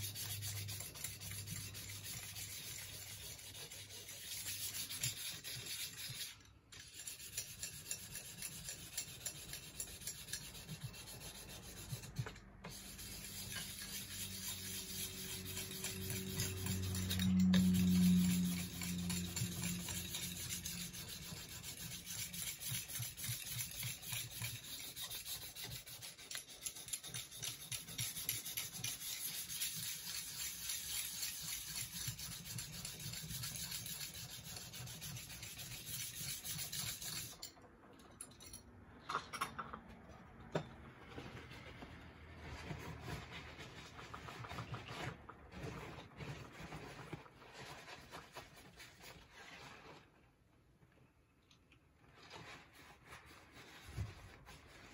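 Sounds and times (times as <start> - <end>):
sanding block scraping metal: 0.0 - 37.5.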